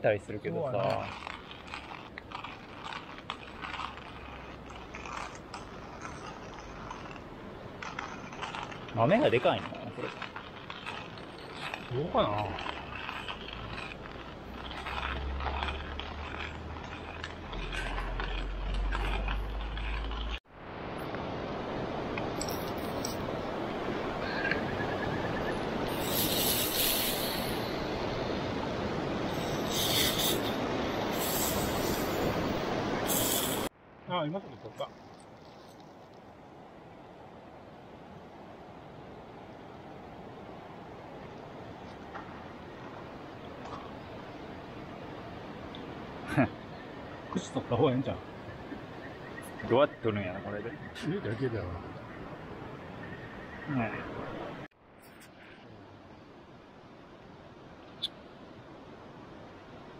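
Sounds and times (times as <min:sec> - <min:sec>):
river rushing: 0:00.6 - 0:34.3
hand coffee grinder crunching beans: 0:00.8 - 0:20.4.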